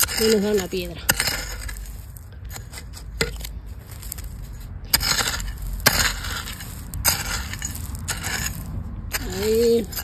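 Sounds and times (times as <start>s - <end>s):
hoe chopping into stony soil: 0.0s - 4.3s, 4.9s - 10.0s
hoe scraping through gravel: 0.0s - 10.0s
sharp hoe strikes: 4.9s - 10.0s.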